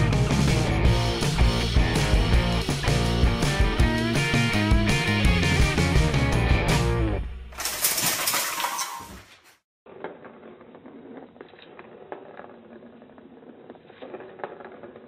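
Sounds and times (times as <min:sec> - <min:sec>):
metal fireplace screen clattering: 0:07.5 - 0:09.4
plastic ball rolling in track: 0:09.9 - 0:15.0.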